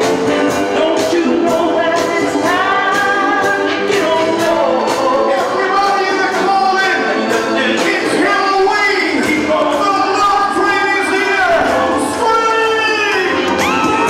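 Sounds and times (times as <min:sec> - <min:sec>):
disco music with singing: 0:00.0 - 0:14.0.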